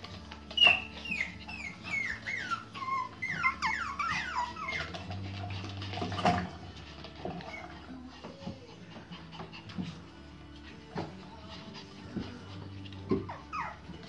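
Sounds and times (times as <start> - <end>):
puppies whining: 0.0 - 14.0.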